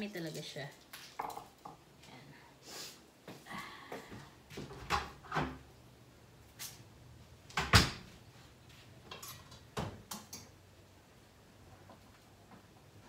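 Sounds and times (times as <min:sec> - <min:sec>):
kitchen knocks and clinks: 0:09.1 - 0:10.6.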